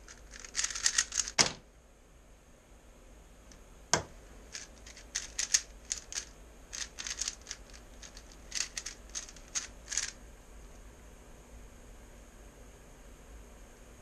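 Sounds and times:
plastic puzzle cube clicking: 0.1 - 1.4, 4.6 - 10.1.

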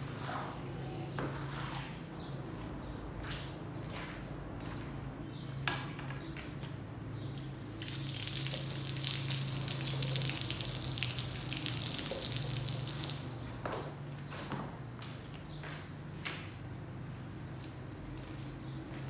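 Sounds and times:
water jet spraying on rug: 7.7 - 13.6.

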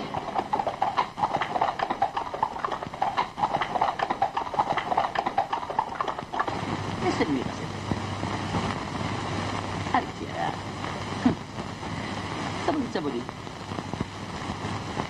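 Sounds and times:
rapid clatter of knocks: 0.0 - 6.5.

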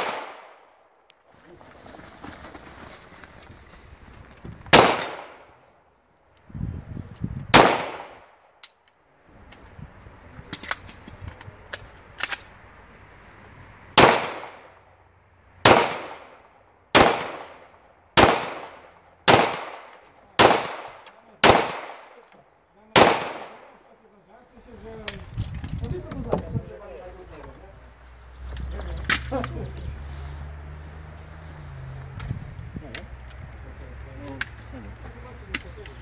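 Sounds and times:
handgun shots: 0.0 - 0.5, 14.0 - 14.6, 23.0 - 23.7.

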